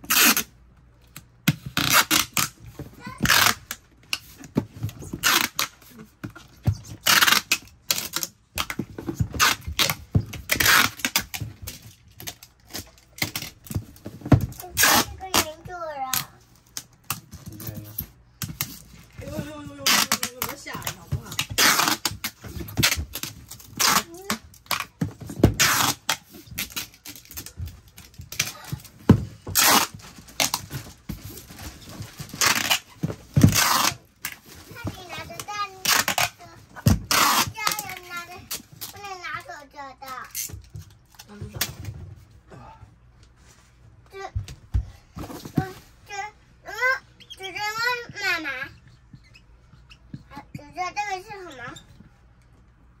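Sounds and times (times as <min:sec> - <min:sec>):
packing tape pulled off roll: 0:00.0 - 0:00.5, 0:01.7 - 0:02.6, 0:03.2 - 0:04.3, 0:07.0 - 0:08.3, 0:09.4 - 0:13.6, 0:14.5 - 0:15.5, 0:21.5 - 0:24.9, 0:25.5 - 0:28.8, 0:29.5 - 0:34.6, 0:37.0 - 0:39.1.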